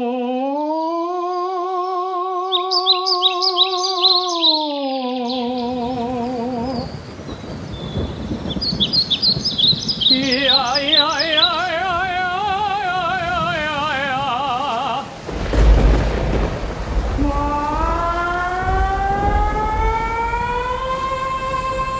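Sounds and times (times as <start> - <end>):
steady rain: 4.0 - 21.9
thunder rumble: 5.6 - 21.9.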